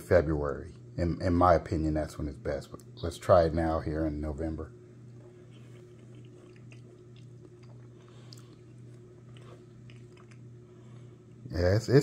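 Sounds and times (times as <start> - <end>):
steady low hum: 0.0 - 12.0
man chewing food: 5.0 - 11.4.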